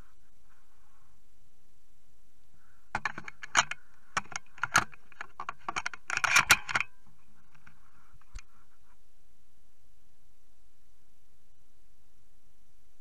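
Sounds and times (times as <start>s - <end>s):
shotgun handling clicks and rattles: 3.0s - 8.4s.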